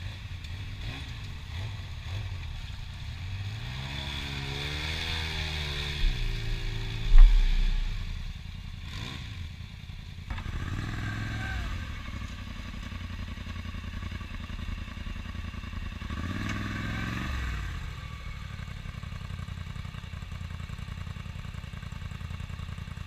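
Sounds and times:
atv engine idling: 0.0 - 23.0.

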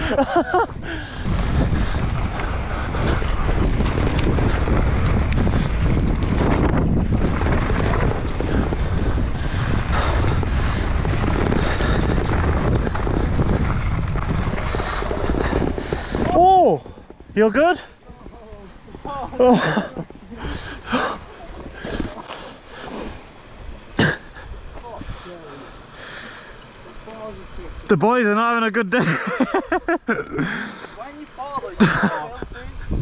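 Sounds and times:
wind on microphone: 0.0 - 17.4, 32.4 - 33.0
bike tyres rumbling over rocks: 0.0 - 28.0, 30.4 - 33.0.

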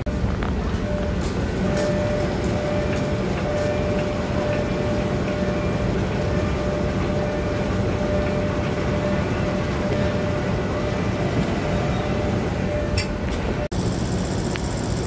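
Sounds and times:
train diesel engine running: 0.0 - 15.0.

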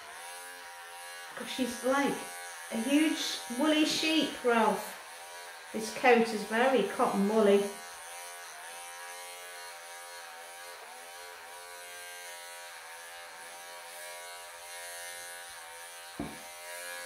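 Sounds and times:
pet clippers buzzing: 0.0 - 17.0
short knock: 16.2 - 16.4.

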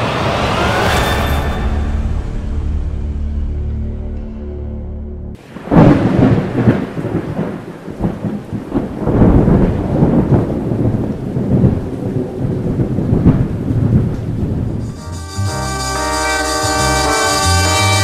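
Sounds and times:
thunder rumbling and cracking: 5.4 - 15.1
falling rain: 5.4 - 18.0.

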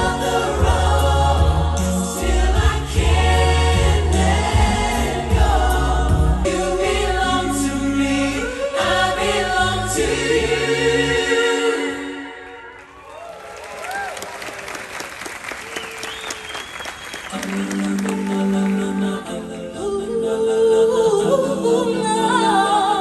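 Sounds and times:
group of voices singing: 0.0 - 12.7, 17.3 - 23.0.

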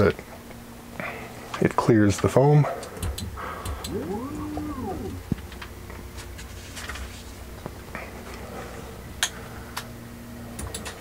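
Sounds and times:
stepper motors humming: 3.7 - 5.4.

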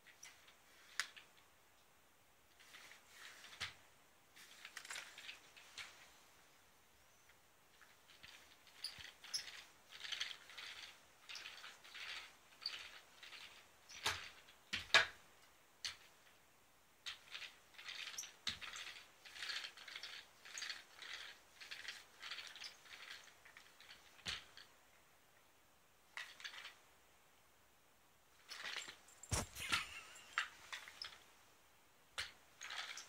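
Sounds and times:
lint roller scratching on rug: 2.6 - 3.6, 28.5 - 31.1.

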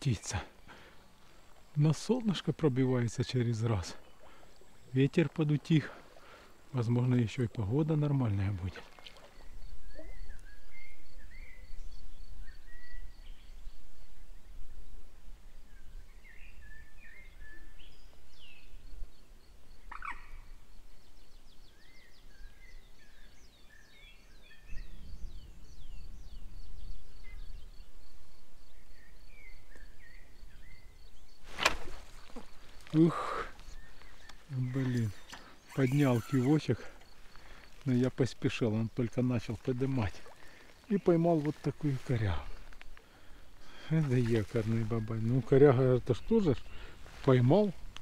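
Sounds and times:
birds chirping and calling: 19.8 - 20.6, 29.0 - 47.8
wind rumble on microphone: 24.4 - 29.2.

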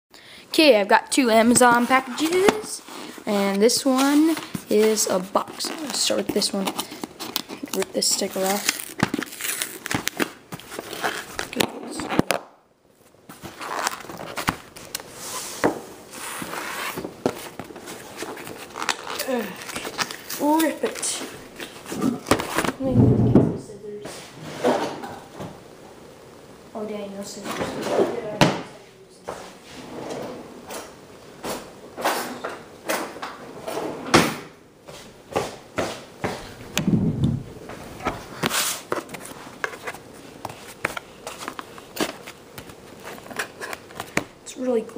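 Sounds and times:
cardboard and paper rustling: 1.6 - 12.4, 13.3 - 22.8, 37.8 - 44.3
cardboard box being torn open: 7.3 - 12.3.

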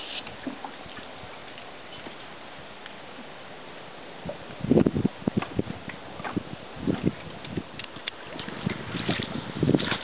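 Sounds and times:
paddle knocking against dinghy: 5.3 - 7.2.

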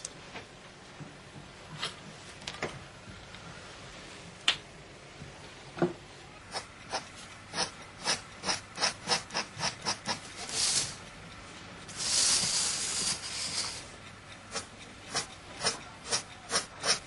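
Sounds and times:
pen scratching on paper: 6.5 - 10.9, 12.0 - 13.9, 14.5 - 17.0
rubbing hiss: 6.5 - 11.0, 11.9 - 13.9.

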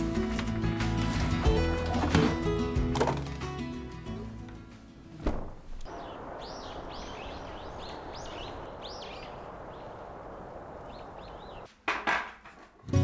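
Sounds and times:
outdoor background rush: 5.8 - 11.7
small birds chirping: 5.8 - 11.7.

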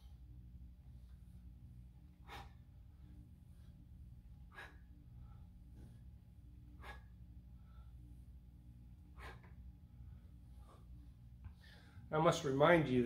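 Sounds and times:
faint low room hum: 0.0 - 13.0.

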